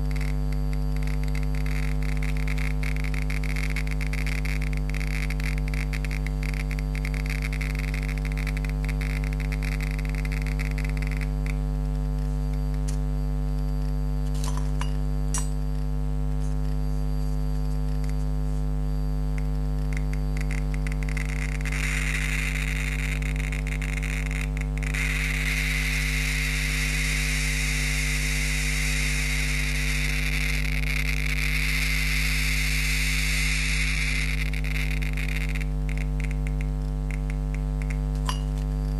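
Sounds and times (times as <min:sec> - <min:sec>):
geiger counter clicking: 0:00.0 - 0:11.7, 0:19.3 - 0:38.7
electrical hum: 0:00.0 - 0:38.9.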